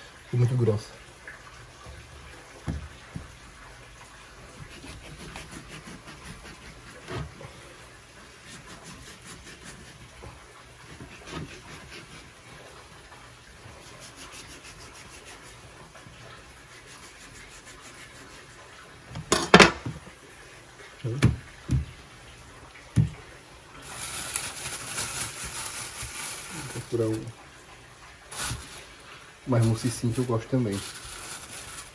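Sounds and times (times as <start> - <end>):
knife cutting meat on wooden board: 4.6 - 7.3, 8.4 - 10.1, 10.9 - 12.2
knocks on chopping board: 21.2 - 21.9
steady hiss: 23.7 - 27.4, 28.2 - 31.9.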